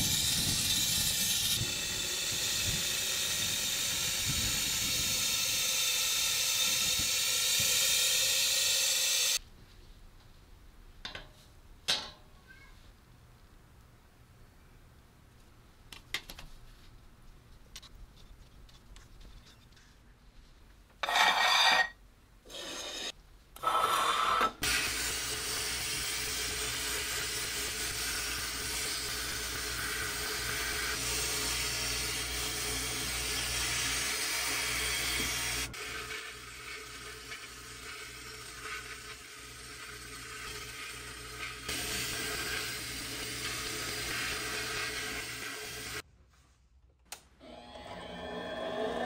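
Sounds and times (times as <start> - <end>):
sandblaster hissing blast: 0.0 - 9.4, 24.6 - 32.8.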